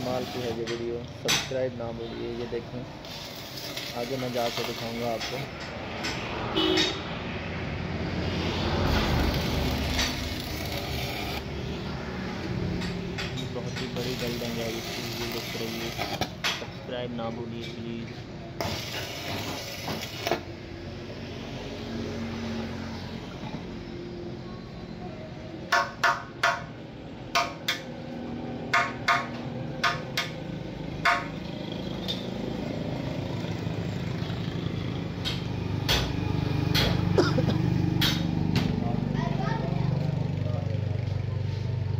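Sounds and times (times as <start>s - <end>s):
welding arc crackling: 3.0s - 5.5s, 8.9s - 11.5s, 14.0s - 16.4s, 18.6s - 20.4s.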